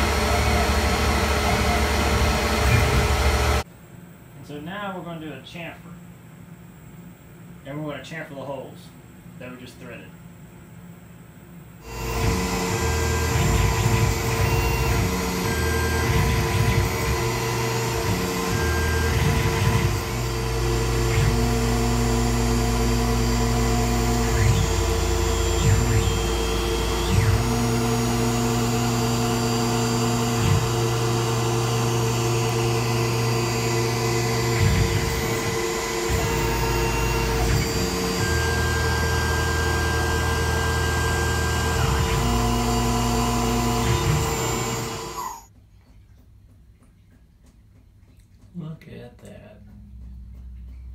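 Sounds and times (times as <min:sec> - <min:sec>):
low machine tones: 0:00.0 - 0:03.6, 0:11.8 - 0:45.5
milling machine humming: 0:00.0 - 0:03.6, 0:11.8 - 0:45.5.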